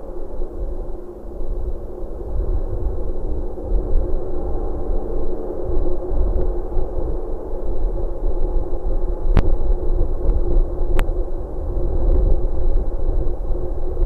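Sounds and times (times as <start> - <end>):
faint high-pitched whine: 0.0 - 14.0
wind rumbling on microphone: 0.0 - 14.0.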